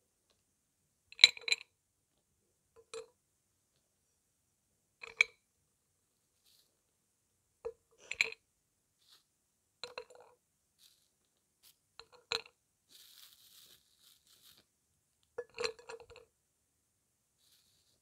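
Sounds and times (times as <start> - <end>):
plastic bag rustling: 10.8 - 11.8, 12.9 - 14.7, 17.4 - 18.0.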